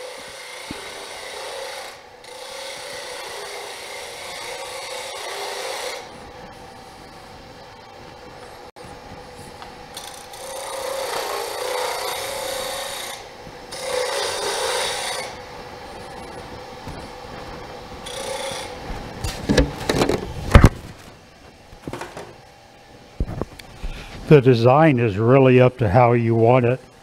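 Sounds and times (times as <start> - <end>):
hand-sanding wood on a lathe: 0.0 - 6.1, 10.1 - 13.2, 13.8 - 15.3
lathe humming: 0.0 - 19.7
sharp knocks: 19.2 - 20.8.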